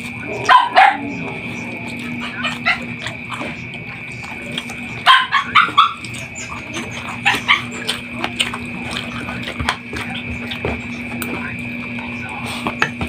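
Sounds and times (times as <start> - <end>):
low hum: 0.0 - 13.0
dog yipping and barking: 0.4 - 1.1, 5.0 - 7.9.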